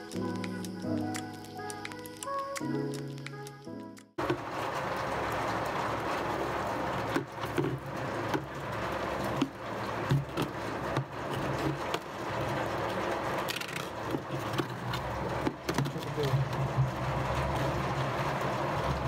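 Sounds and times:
plastic scoop knocking and rubbing: 14.1 - 16.4.

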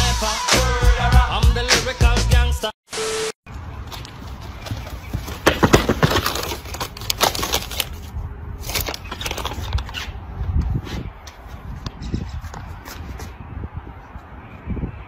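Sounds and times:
paper bag crinkling: 4.0 - 10.0
wind rumbling on microphone: 7.9 - 15.0.

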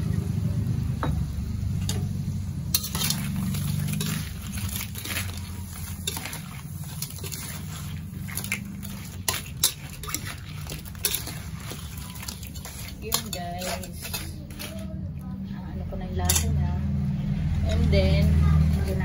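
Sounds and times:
metal spatula scraping a wok: 2.7 - 15.0.

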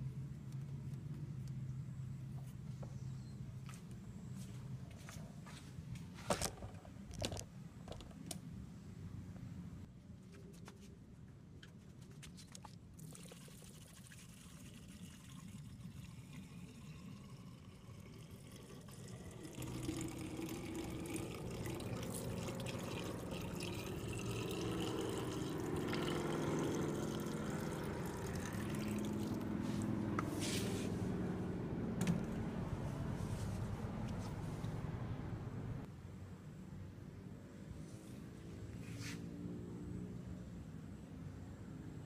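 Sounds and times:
water pouring from a jug: 13.0 - 29.9.

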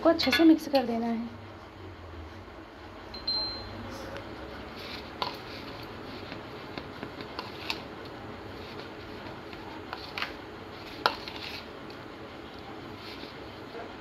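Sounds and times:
spoon scraping plastic bowl: 4.8 - 11.8.

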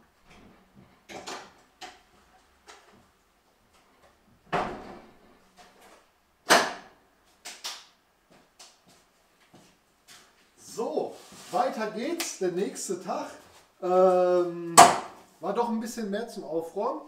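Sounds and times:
objects knocking and clattering: 0.3 - 3.0.

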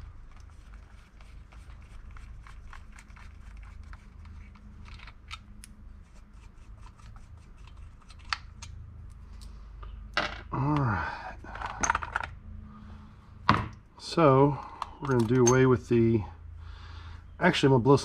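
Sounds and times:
metal nuts clicking and scraping: 14.6 - 15.8.

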